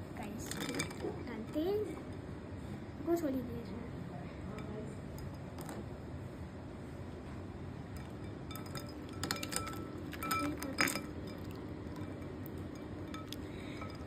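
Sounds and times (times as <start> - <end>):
toy and ice clinking on glass bowl: 0.3 - 2.2, 7.9 - 14.0.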